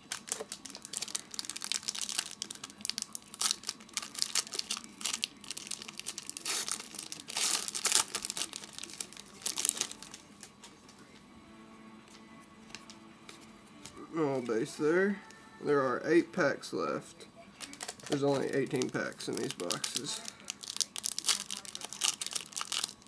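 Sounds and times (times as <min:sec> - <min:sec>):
foil wrapper tearing and crinkling: 0:00.0 - 0:10.2, 0:17.6 - 0:23.0.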